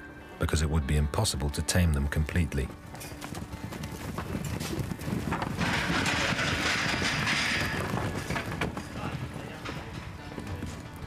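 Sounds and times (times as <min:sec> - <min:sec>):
hooves drumming on dirt: 0:02.0 - 0:11.0.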